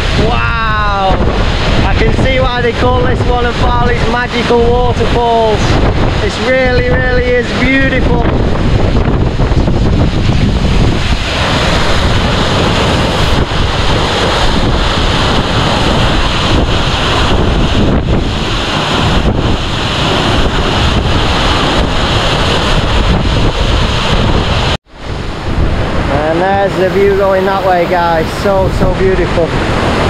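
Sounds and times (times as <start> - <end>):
waterfall roaring: 0.0 - 30.0
wind buffeting microphone: 0.0 - 30.0.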